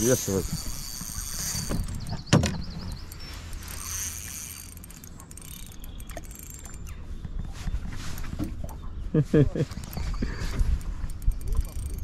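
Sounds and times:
low mechanical hum: 0:00.0 - 0:12.0.

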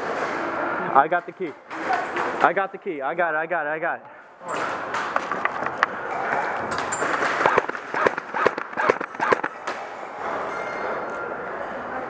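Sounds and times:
airsoft gunfire: 0:07.2 - 0:09.6.

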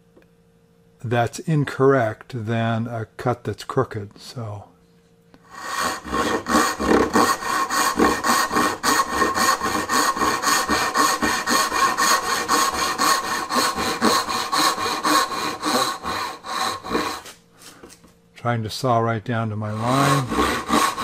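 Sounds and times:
hand saw cutting wood: 0:05.5 - 0:18.0, 0:19.6 - 0:21.0.

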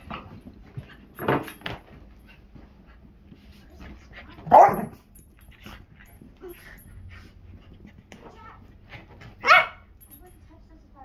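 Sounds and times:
dog yip: 0:09.4 - 0:09.8.

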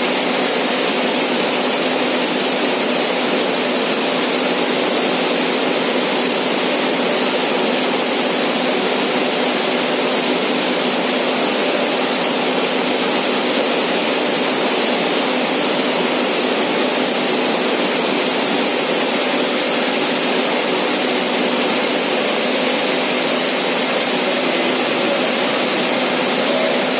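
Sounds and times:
cooling unit fan rushing: 0:00.0 - 0:26.9.

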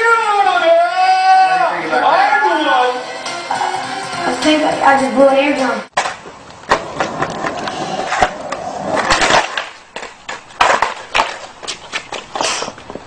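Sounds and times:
skateboard clacking on ground: 0:06.0 - 0:13.0
skateboard wheels on concrete: 0:06.0 - 0:13.0.

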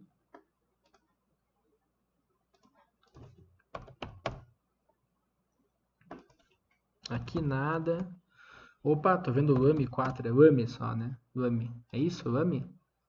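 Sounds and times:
keyboard keystrokes: 0:09.4 - 0:10.2.

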